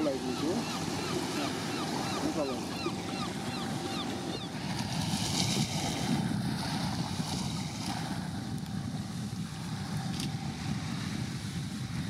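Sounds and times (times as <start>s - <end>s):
waves washing: 0.0s - 12.0s
wind on microphone: 0.0s - 12.0s.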